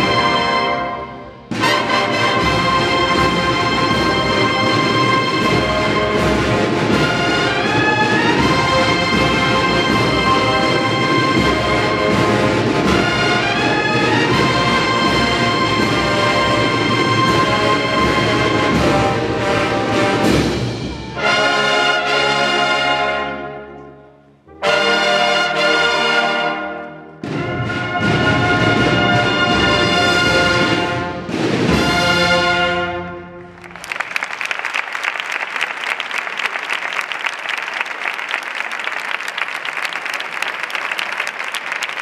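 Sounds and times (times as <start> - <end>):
brass band playing held chords: 0.0 - 23.8, 24.5 - 33.9
audience applauding: 33.5 - 42.0.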